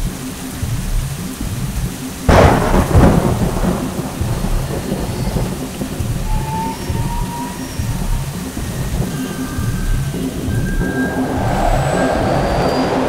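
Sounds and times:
steady rain: 0.0 - 13.0
thunderclap rumbling: 0.0 - 13.0.

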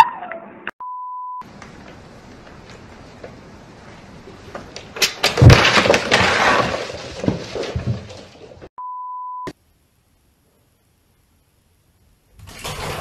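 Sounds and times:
crash of objects falling: 4.6 - 8.7
test tone beep: 8.8 - 9.5.

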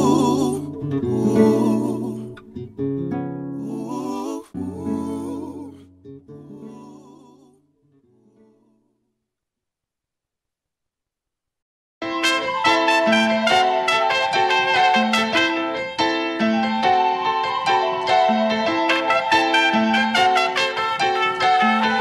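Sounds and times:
background music: 0.0 - 7.4, 12.0 - 22.0.

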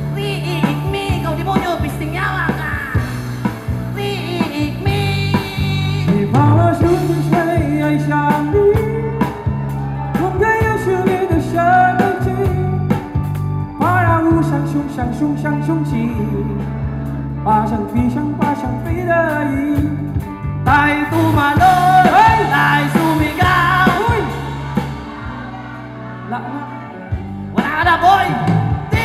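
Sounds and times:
drums beating: 0.0 - 14.5, 20.2 - 26.3, 27.1 - 29.0
live rock band playing: 0.0 - 29.0
person singing: 3.9 - 16.7, 17.4 - 29.0.

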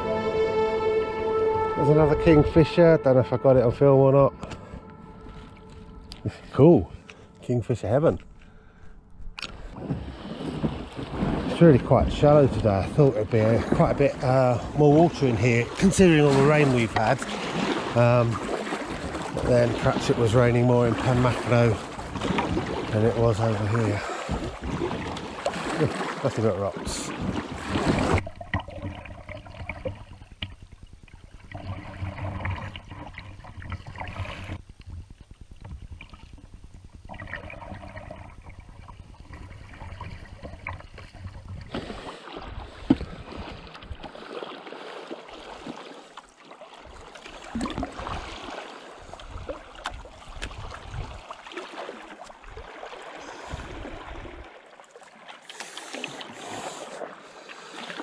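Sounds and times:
low rumble: 0.0 - 11.2
water rippling and gurgling: 0.0 - 58.0.

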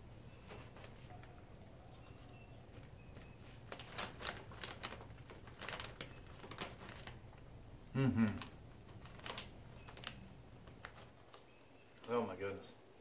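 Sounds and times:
snack bag crinkling: 1.8 - 7.6, 8.2 - 12.1.

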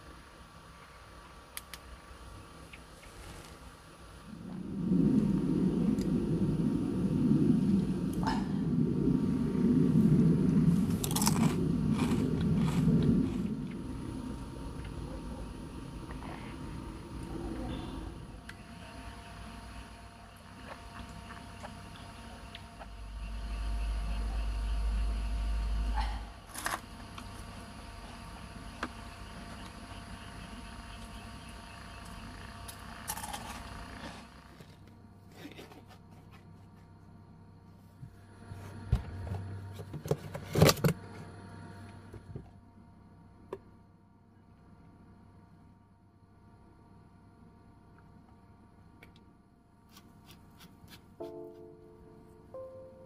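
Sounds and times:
low rumble: 4.0 - 34.2.

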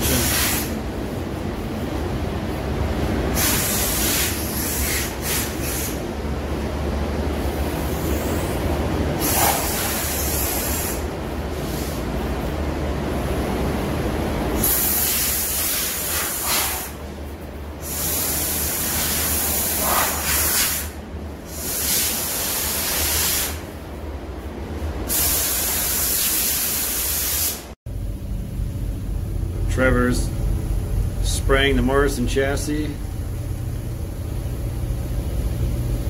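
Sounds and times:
steady low hum: 0.0 - 25.2, 27.9 - 36.0
compressed air blow gun hissing: 3.3 - 6.0, 14.6 - 17.0.

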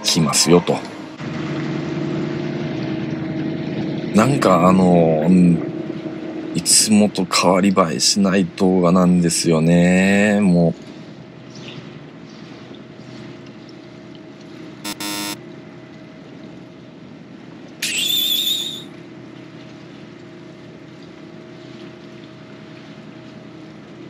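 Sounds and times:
boat engine and crane humming: 0.0 - 24.0
electronic buzz effect: 14.8 - 15.4.

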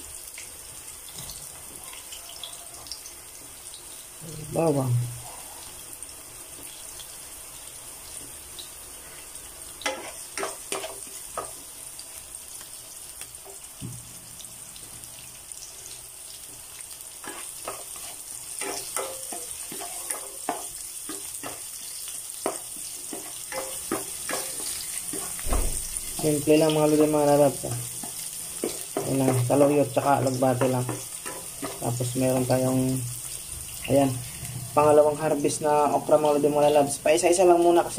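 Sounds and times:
onion sizzling in hot oil: 0.0 - 37.9
spatula scraping and tapping pan: 9.8 - 11.6, 17.2 - 25.4, 27.6 - 32.4.

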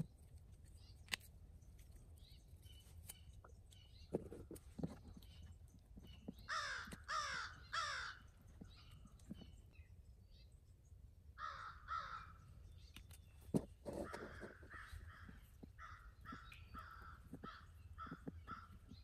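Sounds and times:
crow cawing: 6.5 - 8.2, 11.4 - 12.4, 14.0 - 18.9.

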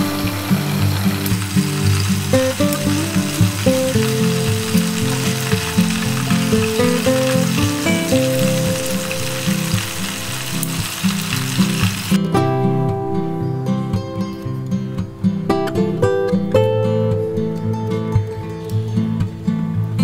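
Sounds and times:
food deep-frying in hot oil: 0.0 - 12.3
guitar music: 0.0 - 20.0.

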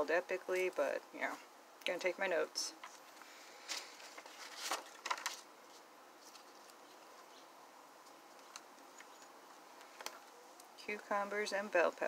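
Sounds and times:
paper pages turning: 2.8 - 7.3.

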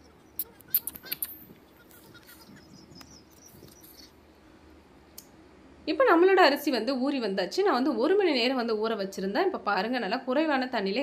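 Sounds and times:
birds chirping: 0.0 - 4.5.

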